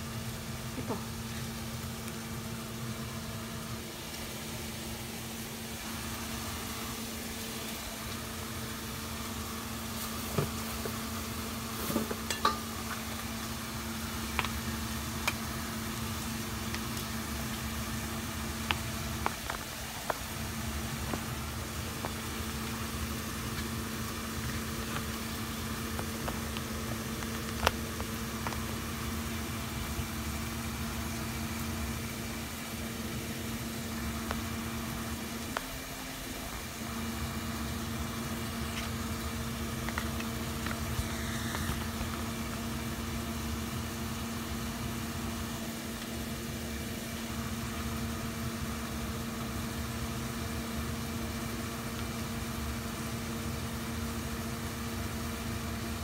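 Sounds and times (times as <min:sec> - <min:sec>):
small motor humming: 0:11.8 - 0:48.1.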